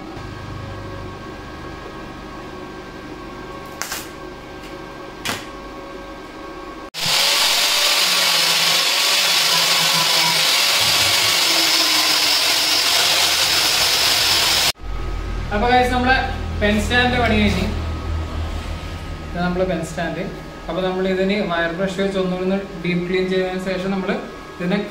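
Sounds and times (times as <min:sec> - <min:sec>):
sharp welder clicks: 0:03.7 - 0:04.1
welder hum: 0:06.9 - 0:23.5
angle grinder grinding steel: 0:07.0 - 0:14.8.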